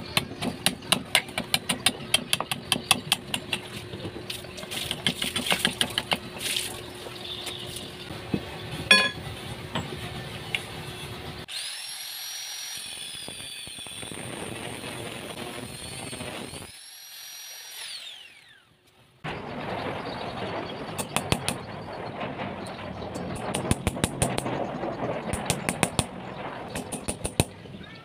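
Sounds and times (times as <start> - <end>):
sharp knocks and clatter: 0.1 - 6.7, 19.2 - 27.8
angle grinder cutting metal: 11.5 - 18.6.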